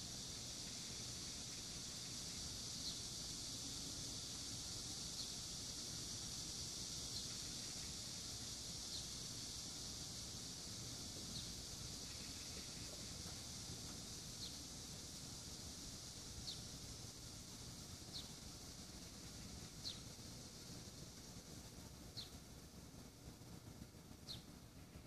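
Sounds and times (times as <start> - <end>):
steady high hiss: 0.0 - 25.0
bird chirping: 0.7 - 3.4, 7.0 - 9.2, 14.3 - 14.7, 16.4 - 16.7, 18.1 - 18.4, 19.3 - 20.2, 22.1 - 22.4, 24.2 - 24.5.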